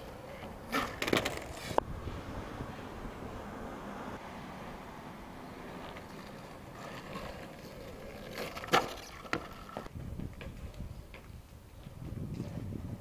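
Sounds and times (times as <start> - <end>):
longboard wheels rolling on asphalt: 0.0 - 13.0
skateboard slapping down: 0.2 - 1.8, 5.8 - 9.9
skateboard knocks: 0.4 - 1.6.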